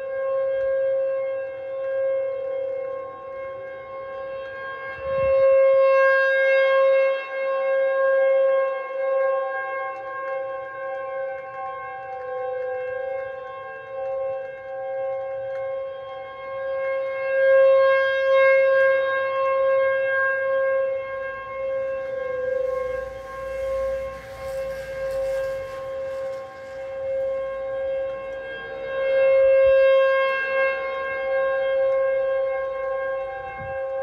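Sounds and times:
tornado warning siren: 0.0 - 34.0
soft rushing noise: 21.6 - 27.8.

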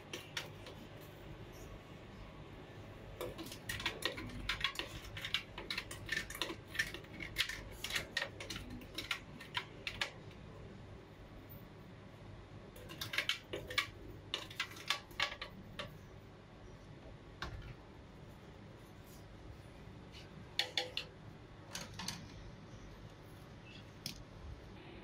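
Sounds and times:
spatula scraping plastic cup: 3.2 - 10.1.

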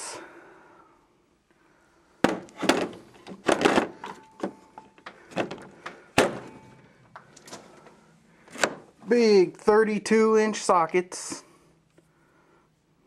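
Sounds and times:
sharp knocks: 2.2 - 3.9
metal tools clinking in plastic case: 2.6 - 5.7.

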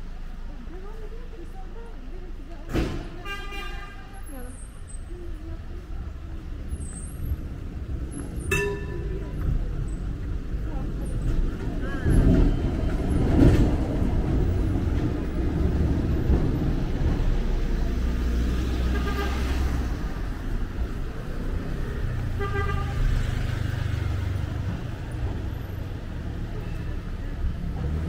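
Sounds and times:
city traffic rumble: 0.0 - 28.0
car horn: 3.2 - 4.2, 8.5 - 9.1, 18.7 - 19.7, 22.3 - 23.4.

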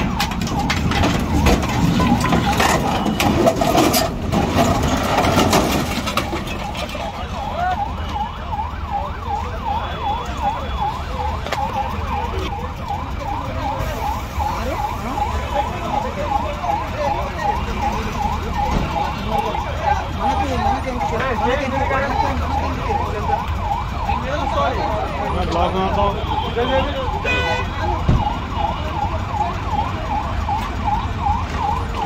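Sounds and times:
emergency siren yelping: 0.0 - 32.0
low traffic rumble: 0.0 - 32.0.

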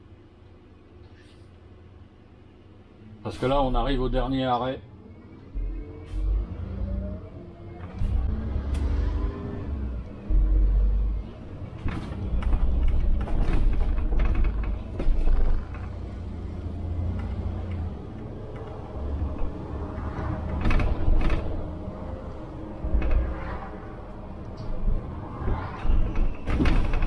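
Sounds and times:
bus engine and road rumble: 0.0 - 27.0
rattles and knocks from bus body: 10.2 - 27.0.

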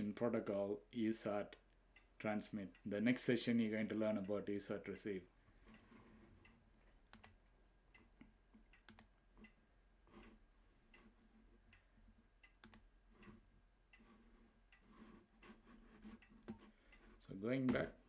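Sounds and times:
computer mouse clicks: 5.7 - 7.4, 8.0 - 11.1, 12.4 - 13.4.

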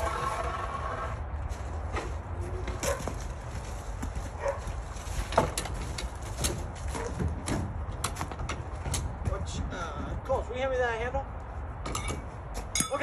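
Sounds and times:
knocks and clanks of work: 5.2 - 9.4.

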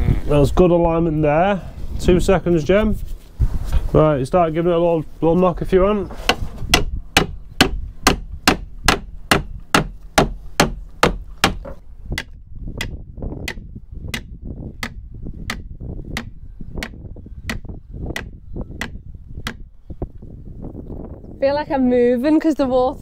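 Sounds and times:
hammer blows on timber: 6.1 - 19.7.

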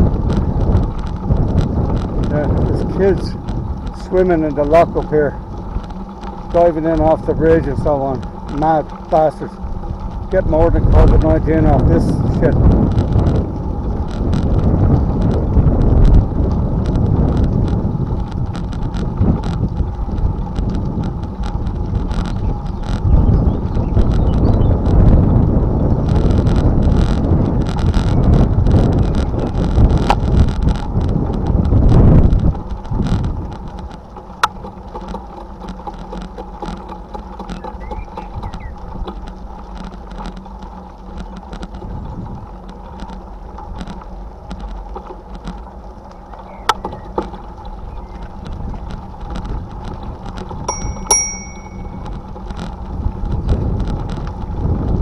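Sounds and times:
tyres crunching over gravel: 0.0 - 55.0
wind buffeting microphone: 0.0 - 55.0
bicycle bell ringing: 50.7 - 52.3.

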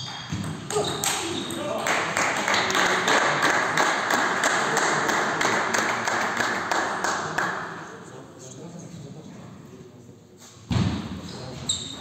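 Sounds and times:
spectators applauding: 1.8 - 7.5.

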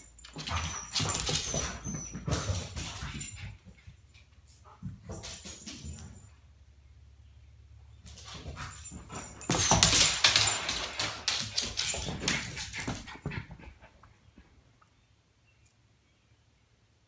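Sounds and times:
dogs whining: 0.2 - 3.4.

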